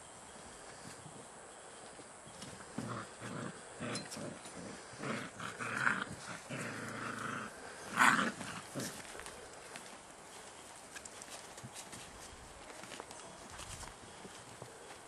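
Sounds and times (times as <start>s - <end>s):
dogs growling: 2.3s - 9.6s.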